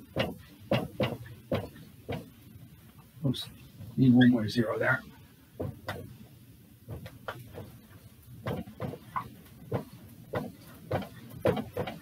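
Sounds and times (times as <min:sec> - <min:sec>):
marker scratching on whiteboard: 0:06.9 - 0:12.0.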